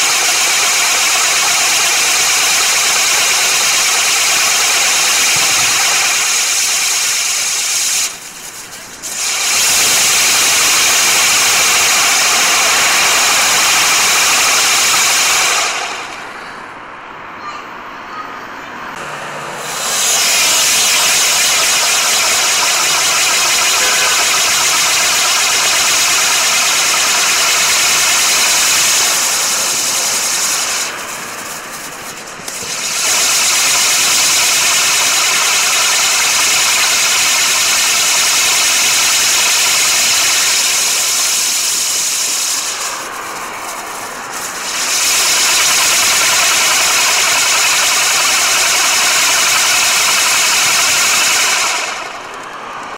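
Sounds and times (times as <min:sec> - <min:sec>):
firework hissing: 0:00.0 - 0:16.4, 0:19.6 - 0:52.2.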